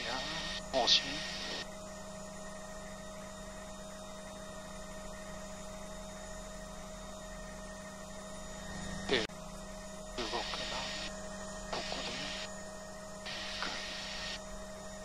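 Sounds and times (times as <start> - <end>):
radio transmission: 0.0 - 1.6, 10.2 - 12.5, 13.3 - 14.4
helicopter cockpit hum: 0.0 - 15.0.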